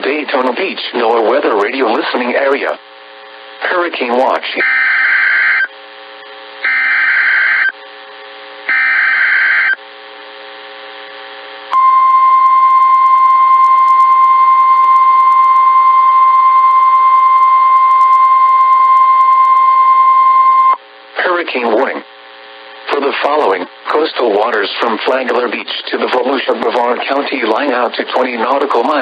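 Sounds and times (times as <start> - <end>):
radio hiss: 0.0 - 11.8, 20.8 - 29.0
warbling data bursts: 6.6 - 7.7, 8.7 - 9.8.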